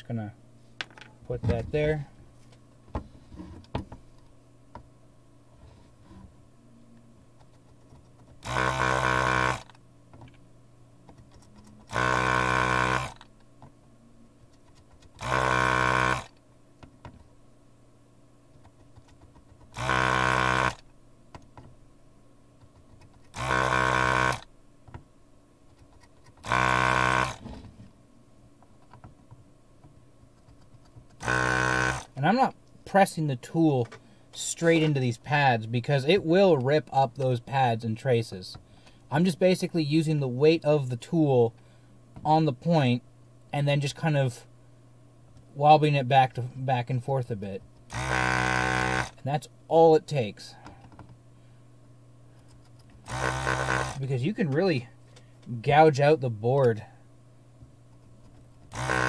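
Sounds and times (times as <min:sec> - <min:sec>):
desoldering vacuum pump bursts: 0:08.4 - 0:09.7, 0:11.9 - 0:13.2, 0:15.2 - 0:16.4, 0:19.7 - 0:20.8, 0:23.3 - 0:24.5, 0:26.4 - 0:27.6, 0:31.2 - 0:32.5, 0:47.9 - 0:49.2, 0:53.0 - 0:54.2, 0:58.7 - 0:59.0.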